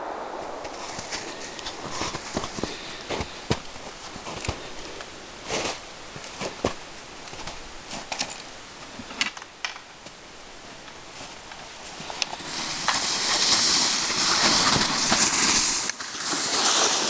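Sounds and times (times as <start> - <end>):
footsteps crunching in snow: 0.0 - 9.1, 10.6 - 17.0
plastic sled scraping over snow: 11.1 - 17.0.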